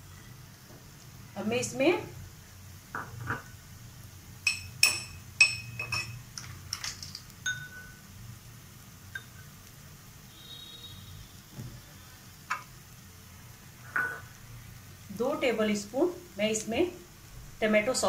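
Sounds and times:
kitchen utensils clinking: 4.5 - 8.0.

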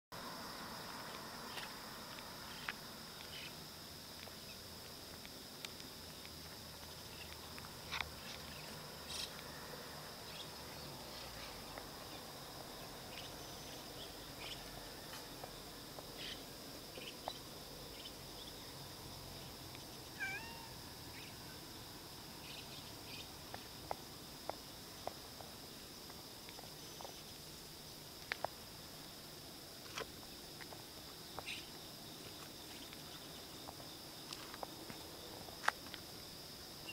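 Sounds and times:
insects chirring: 0.2 - 36.9
cat meowing: 20.2 - 20.8.

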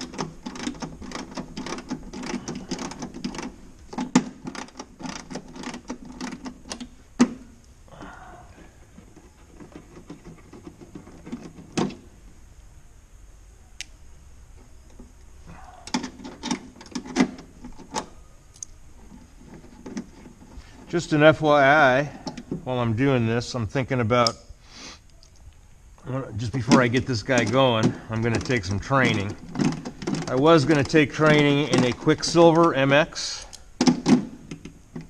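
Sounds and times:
handling sounds: 0.0 - 12.4, 26.4 - 35.0.

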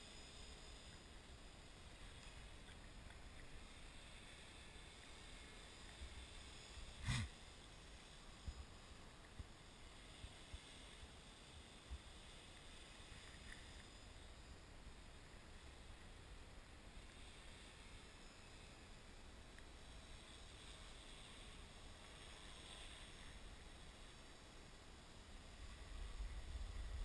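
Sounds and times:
wind rumble on microphone: 25.6 - 27.0.

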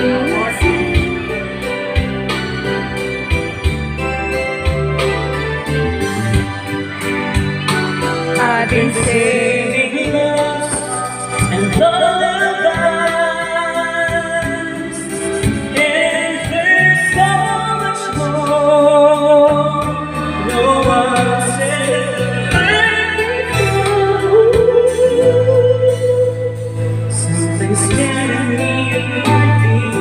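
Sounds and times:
instrumental backing track: 0.0 - 30.0
man singing into microphone: 8.4 - 26.5, 27.1 - 30.0.

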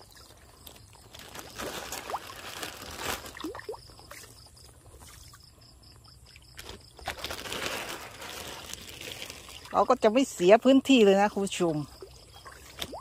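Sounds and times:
fish splashing at water surface: 0.0 - 5.5, 6.2 - 10.0
water lapping: 0.0 - 13.0
water trickling: 0.0 - 13.0.

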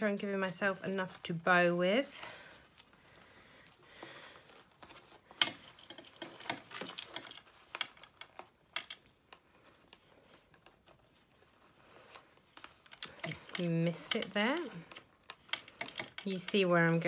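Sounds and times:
paper and ribbon handling rustles: 0.0 - 17.0.

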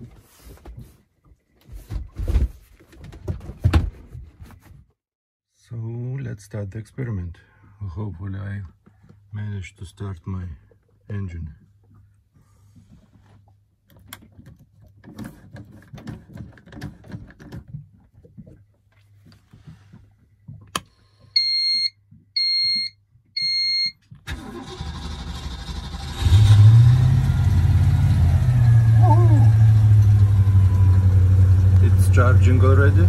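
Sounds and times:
engine starter cranking and idling: 24.3 - 33.0.

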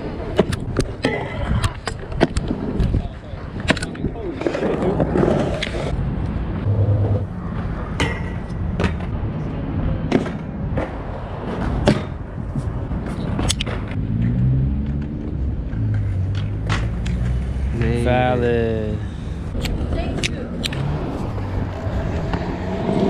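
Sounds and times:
skateboards clacking on concrete: 0.0 - 6.0
low rumble of city traffic: 0.0 - 23.0
wind: 0.0 - 23.0.

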